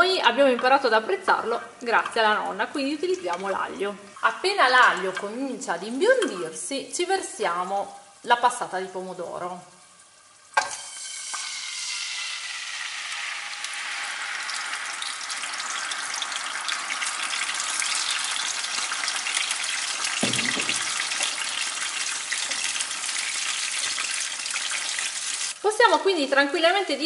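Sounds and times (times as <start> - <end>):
sauce sizzling in hot oil: 1.3 - 27.0
low thump: 20.2 - 20.9.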